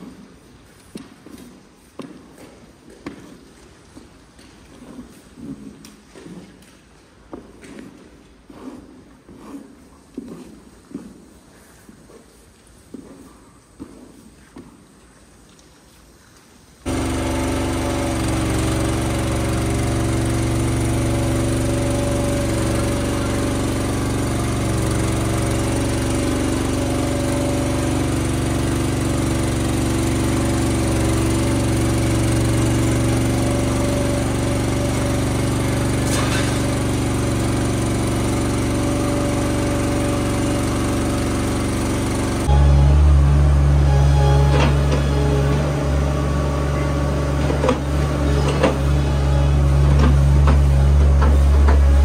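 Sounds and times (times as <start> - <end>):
small motor running steadily: 16.9 - 52.0.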